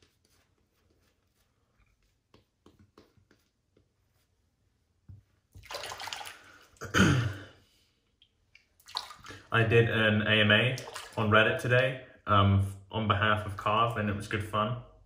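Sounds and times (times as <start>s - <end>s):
brush strokes on lathered face: 0.0s - 5.5s
water running into a sink: 5.6s - 6.6s, 8.8s - 9.4s.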